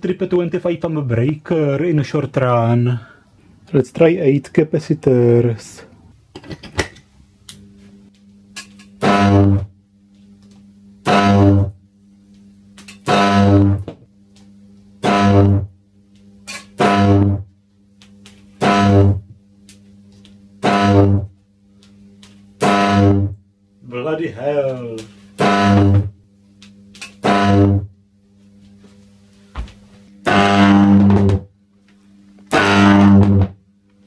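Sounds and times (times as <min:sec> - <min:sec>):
low transformer hum: 0:00.0 - 0:34.0
high-voltage arc buzzing: 0:07.5 - 0:14.1, 0:14.9 - 0:28.9, 0:29.6 - 0:31.5, 0:32.3 - 0:33.7.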